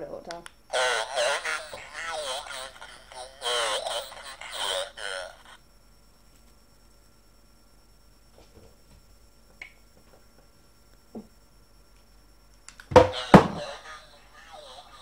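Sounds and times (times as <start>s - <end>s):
faint small noises: 0.0s - 15.0s.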